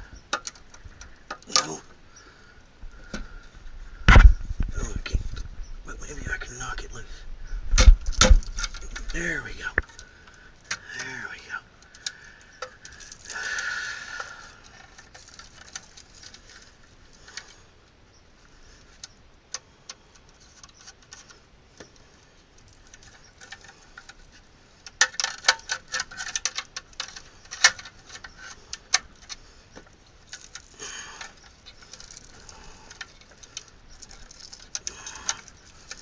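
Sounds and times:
soft rustle: 0:00.0 - 0:36.0
metallic clicks and rattles: 0:07.7 - 0:11.1, 0:11.8 - 0:17.6, 0:18.7 - 0:36.0.

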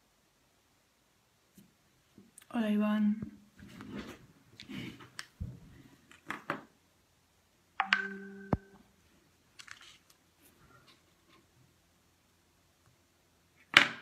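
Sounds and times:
phone tapping clicks: 0:07.8 - 0:08.8.

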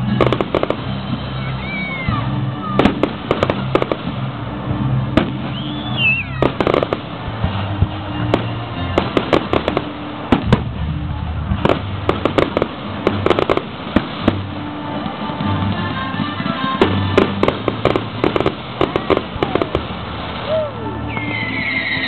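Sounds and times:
fireworks bangs and pops: 0:00.0 - 0:21.4
falling firework whistle: 0:05.4 - 0:07.0, 0:20.4 - 0:22.0.

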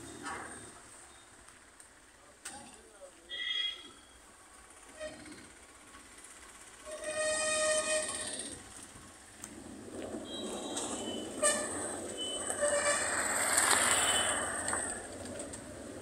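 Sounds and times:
motorcycle passing on gravel: 0:08.0 - 0:16.0.

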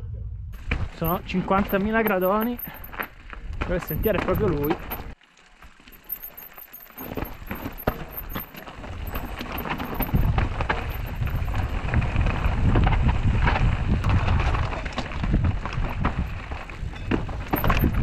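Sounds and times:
bike rattling over stones: 0:00.6 - 0:18.0
wind on microphone: 0:09.9 - 0:18.0.

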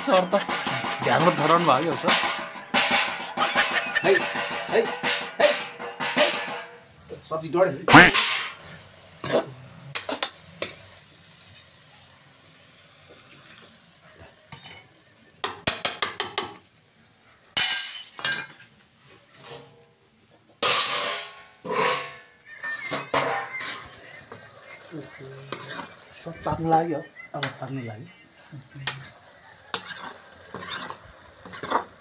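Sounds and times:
metal spatula scraping a pan: 0:00.0 - 0:07.1, 0:14.5 - 0:14.9, 0:17.6 - 0:19.8, 0:20.6 - 0:26.8, 0:28.8 - 0:32.0.

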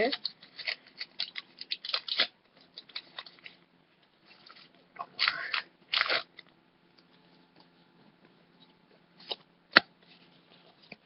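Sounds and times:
foil wrapper crinkling: 0:00.0 - 0:03.6, 0:04.2 - 0:06.5.

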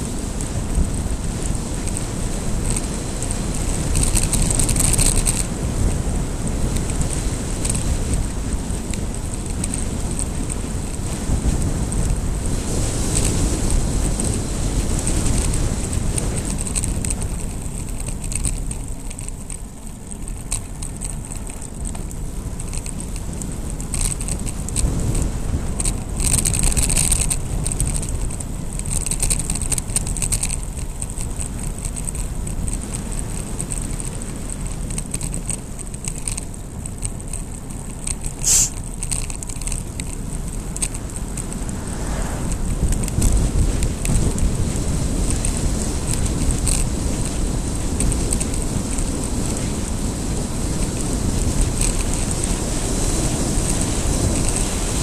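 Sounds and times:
bicycle tyre rumble on asphalt: 0:00.0 - 0:55.0
light rattling clicks: 0:00.0 - 0:55.0
road noise: 0:00.0 - 0:55.0
short loud hiss: 0:38.4 - 0:38.8
wind rush: 0:40.1 - 0:55.0.

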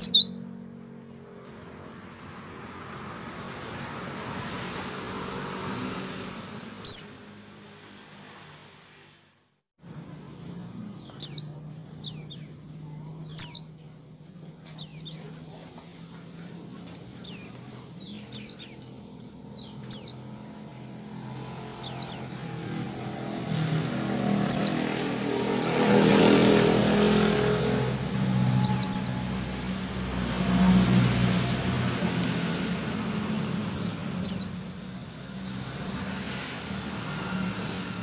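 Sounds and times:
bird chirping: 0:00.0 - 0:00.7, 0:06.8 - 0:07.2, 0:10.6 - 0:15.5, 0:16.8 - 0:25.1, 0:27.1 - 0:30.0, 0:32.6 - 0:36.1
rushing background noise: 0:09.8 - 0:38.0.

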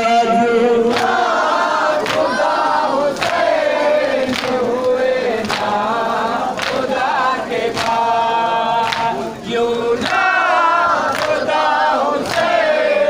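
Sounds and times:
men chanting in unison: 0:00.0 - 0:13.0.

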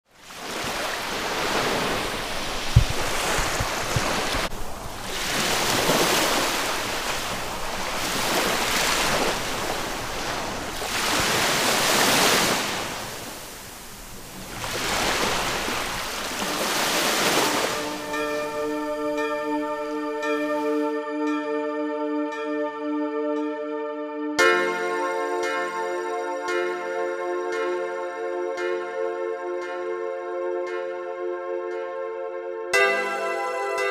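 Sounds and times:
surf washing onto sandy beach: 0:00.2 - 0:20.8
low thump: 0:02.7 - 0:04.1.

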